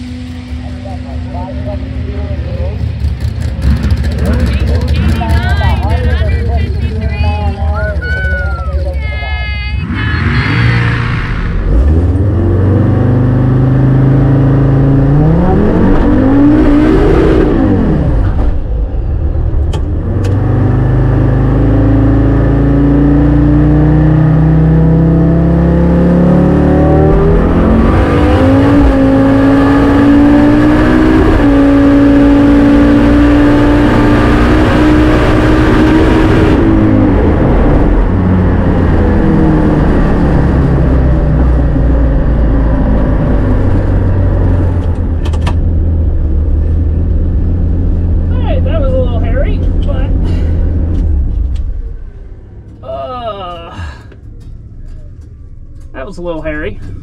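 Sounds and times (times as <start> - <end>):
engine revving through gear changes: 9.8 - 18.6, 19.6 - 52.8.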